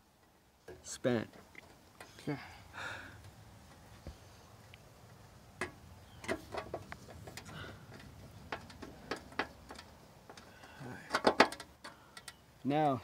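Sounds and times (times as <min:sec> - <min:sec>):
metal clicks and ticks: 0:04.6 - 0:13.0.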